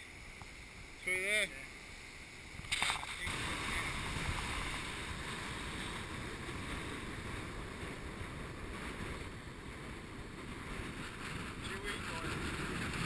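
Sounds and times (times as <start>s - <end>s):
wind on camera microphone: 2.5s - 13.0s
surf breaking: 2.6s - 13.0s.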